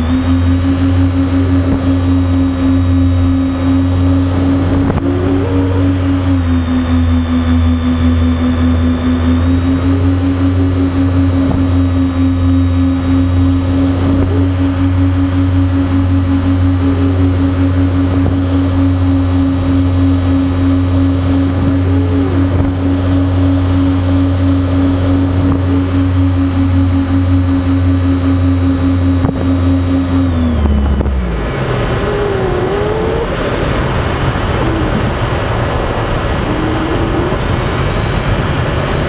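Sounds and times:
electric motors and propellers: 0:00.0 - 0:39.0
wind rumble: 0:01.6 - 0:08.7, 0:31.4 - 0:39.0.

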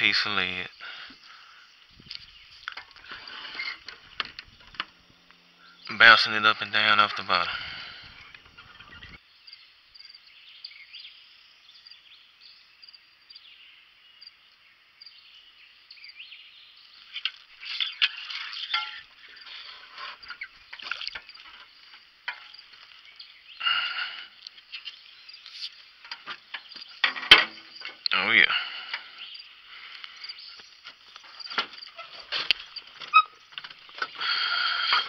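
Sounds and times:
birds: 0:00.0 - 0:35.0
insects: 0:00.0 - 0:35.0
water splashes: 0:20.8 - 0:21.4.

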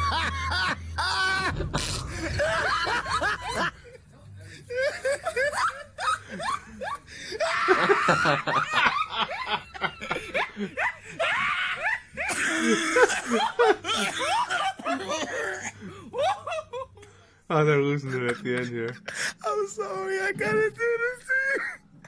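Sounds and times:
people laughing hard: 0:00.0 - 0:17.0, 0:18.0 - 0:19.4.

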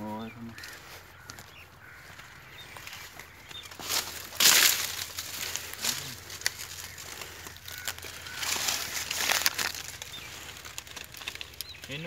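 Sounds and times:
dry leaves and netting rustling: 0:00.0 - 0:12.0.

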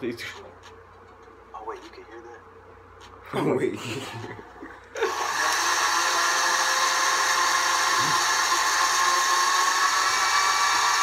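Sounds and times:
electric blender motor running: 0:05.0 - 0:11.0.

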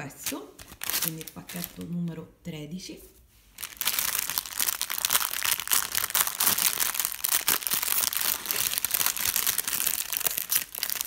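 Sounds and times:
foil gift bag crinkling: 0:00.2 - 0:01.9, 0:03.6 - 0:11.0.

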